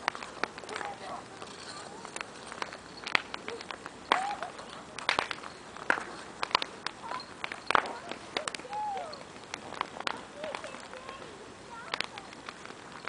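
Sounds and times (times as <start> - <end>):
ice skate blades scraping ice: 0.0 - 13.0.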